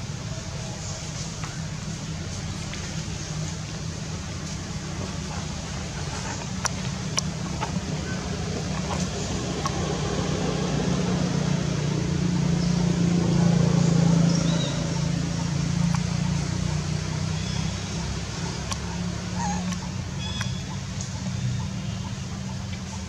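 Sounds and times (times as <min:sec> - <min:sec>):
low engine drone: 0:00.0 - 0:23.0
faint clicks: 0:06.2 - 0:09.8, 0:18.6 - 0:18.9.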